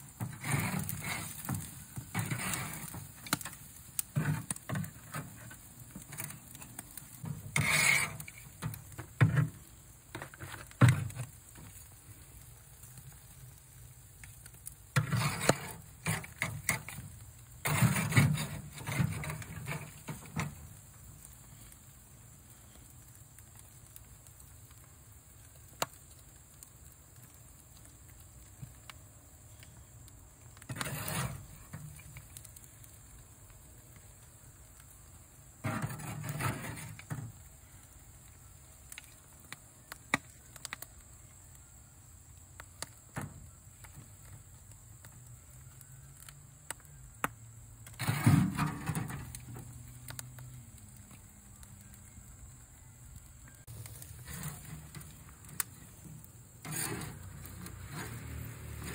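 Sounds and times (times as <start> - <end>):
spatula scraping grill grate: 0.0 - 11.9, 14.6 - 20.8, 30.6 - 32.4, 35.6 - 37.4, 47.8 - 50.2, 53.6 - 58.9.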